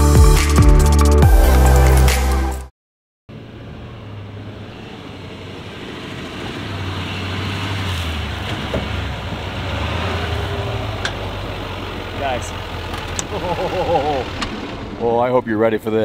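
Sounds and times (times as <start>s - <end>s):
diesel truck engine running: 3.3s - 16.0s.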